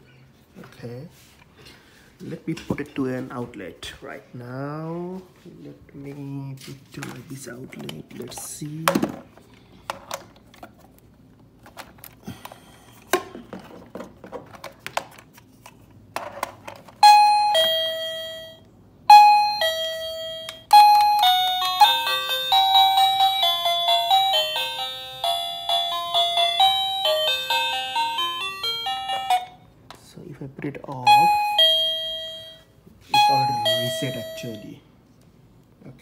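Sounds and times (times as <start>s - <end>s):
doorbell receiver clicks: 19.1s - 21.4s
electronic two-note ding-dong: 31.1s - 34.7s
electronic chime melody: 31.1s - 34.8s.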